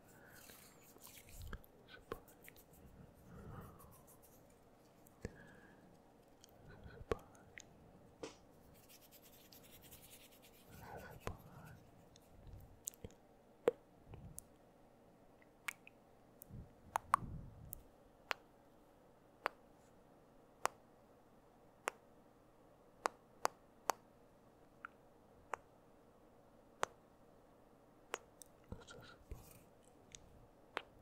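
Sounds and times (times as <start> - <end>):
soft breathy sounds: 0.0 - 8.1
wet mouth clicks: 12.8 - 14.5.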